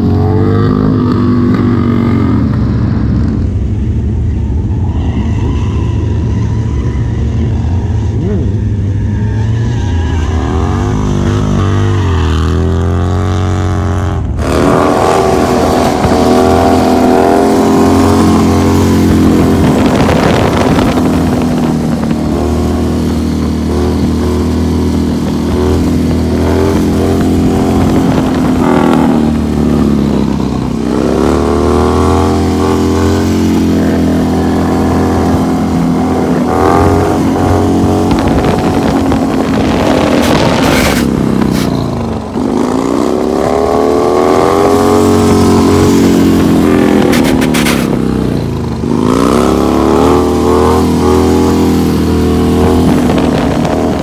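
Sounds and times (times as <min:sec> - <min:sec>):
motorcycle engines running: 0:00.0 - 0:54.0
motorcycle engine revving hard: 0:07.5 - 0:54.0.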